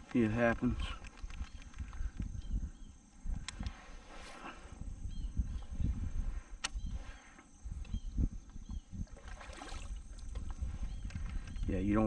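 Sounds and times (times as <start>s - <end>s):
wind gusting over microphone: 0.0s - 12.0s
sharp click: 6.6s - 6.8s.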